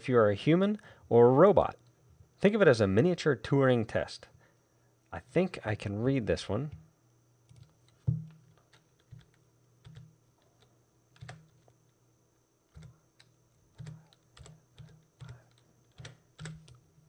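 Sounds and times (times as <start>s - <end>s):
keyboard keystrokes: 11.2s - 11.7s, 12.7s - 16.8s.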